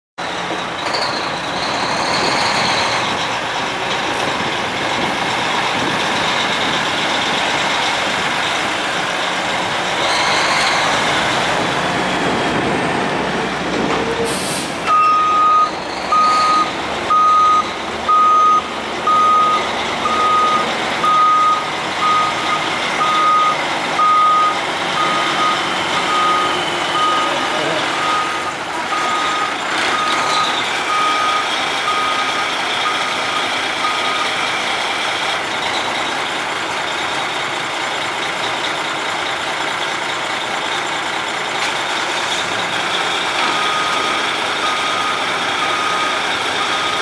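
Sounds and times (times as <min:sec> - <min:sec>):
diesel truck engine running: 0:00.2 - 0:47.0
reversing alarm beeping: 0:14.8 - 0:34.6, 0:43.4 - 0:47.0.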